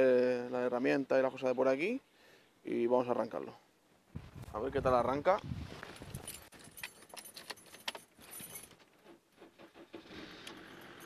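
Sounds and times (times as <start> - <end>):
keys jangling: 6.0 - 8.9.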